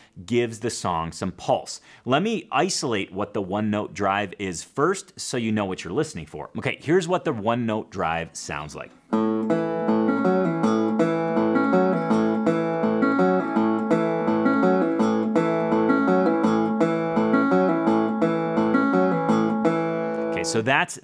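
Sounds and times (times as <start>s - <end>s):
resonator guitar fingerpicking: 9.0s - 20.6s.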